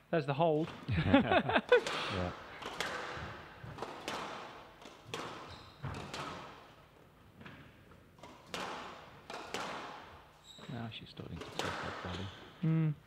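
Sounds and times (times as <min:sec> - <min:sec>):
squash ball cracking off rackets: 0:01.8 - 0:06.8, 0:07.4 - 0:10.3, 0:11.4 - 0:12.2.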